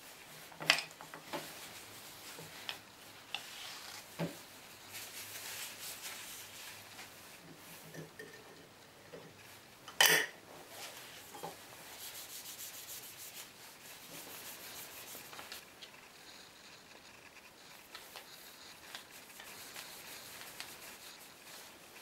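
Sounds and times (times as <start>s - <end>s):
cloth rubbing on wood: 1.3s - 7.8s, 10.5s - 22.0s.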